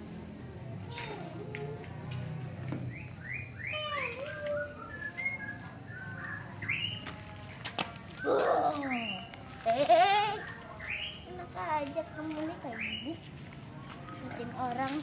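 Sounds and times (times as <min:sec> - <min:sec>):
small bird chirping: 0:02.9 - 0:14.4.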